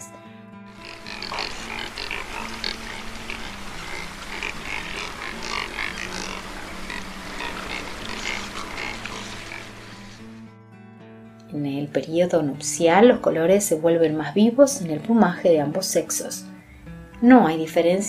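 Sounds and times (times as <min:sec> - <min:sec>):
birds chattering high calls: 0:00.8 - 0:10.3
cormorant low grunts: 0:00.8 - 0:10.4.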